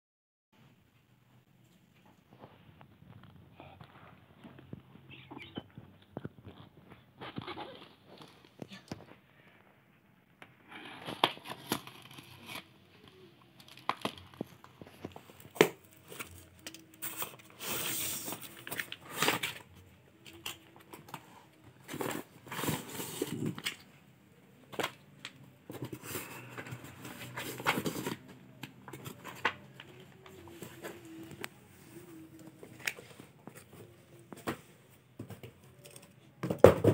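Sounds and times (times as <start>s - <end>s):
plastic pouches crinkling: 11.0s - 21.1s.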